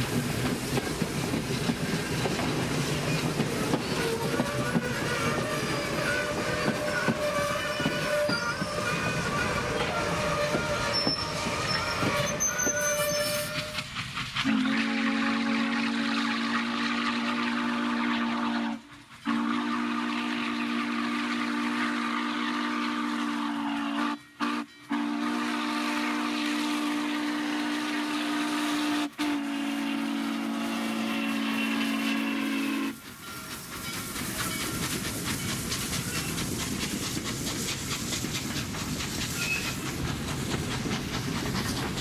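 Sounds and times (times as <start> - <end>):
wheels clattering on rails: 0.0 - 14.5, 33.0 - 42.0
passing train rumble: 0.0 - 42.0
steam locomotive chime whistle: 3.0 - 36.4, 39.4 - 39.9.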